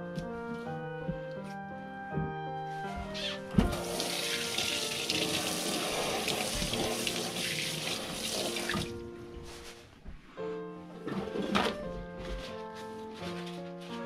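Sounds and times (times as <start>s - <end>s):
background music: 0.0s - 14.0s
water running into sink: 3.7s - 8.9s.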